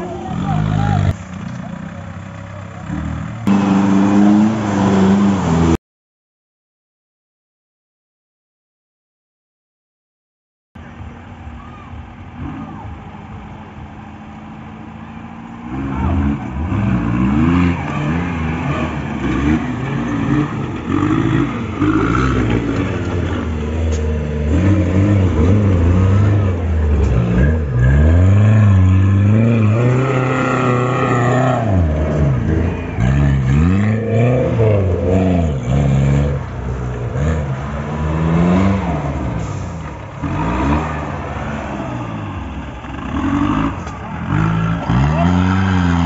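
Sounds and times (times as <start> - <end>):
off-road engines revving: 0.0 - 5.8, 10.8 - 46.0.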